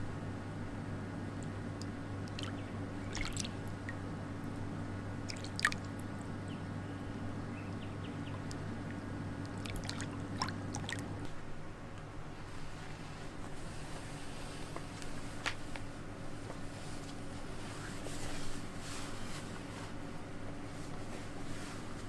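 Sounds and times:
steady low hum: 0.0 - 22.0
hand splashing in pool water: 1.8 - 4.0, 5.2 - 6.1, 9.5 - 11.2.

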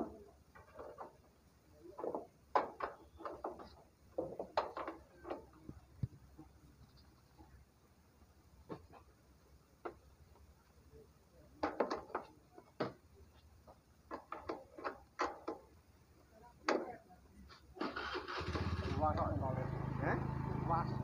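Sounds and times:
engine noise: 17.8 - 21.0.

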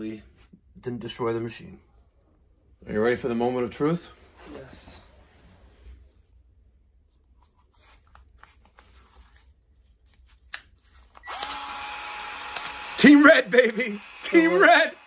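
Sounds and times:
power tool motor whining: 11.2 - 15.0.

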